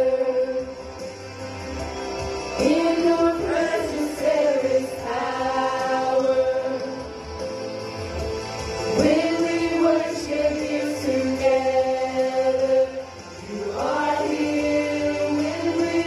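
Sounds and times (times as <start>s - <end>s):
group singing gospel song: 0.0s - 1.2s, 1.9s - 7.7s, 8.8s - 16.0s.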